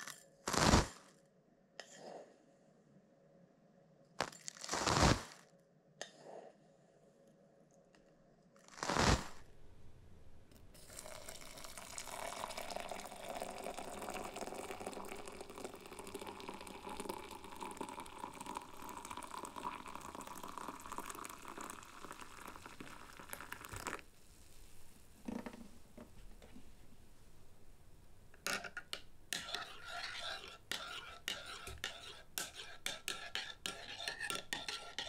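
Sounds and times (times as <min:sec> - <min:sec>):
water pouring into a mug: 0:10.8 - 0:24.1.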